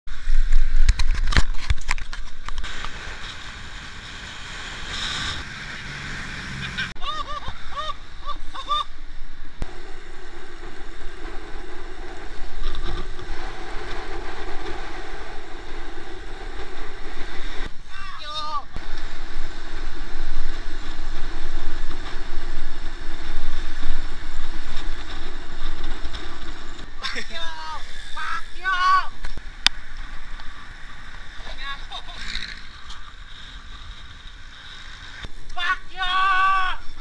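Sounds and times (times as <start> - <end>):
wind and road noise: 0.1 - 37.0
cyclist laughing: 6.5 - 9.0, 12.4 - 13.2, 26.9 - 28.5, 31.5 - 32.7.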